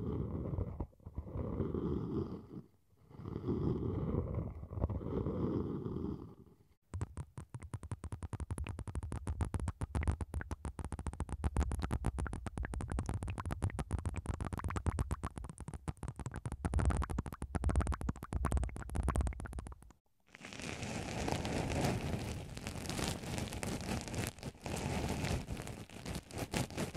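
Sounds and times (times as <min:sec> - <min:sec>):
rapid crackling clicks: 0:07.0 - 0:20.0
low rubbing on microphone: 0:20.4 - 0:26.9.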